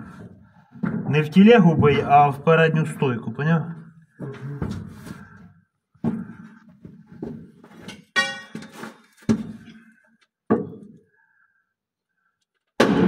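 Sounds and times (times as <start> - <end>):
crowbar striking metal: 8.2 - 8.8.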